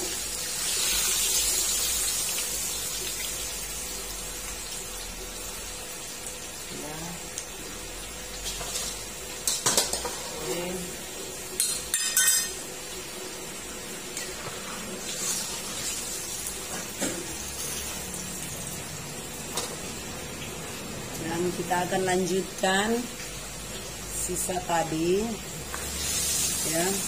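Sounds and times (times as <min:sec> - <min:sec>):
oil sizzling: 0:00.0 - 0:27.0
metal skimmer clanking on wok: 0:11.6 - 0:12.6.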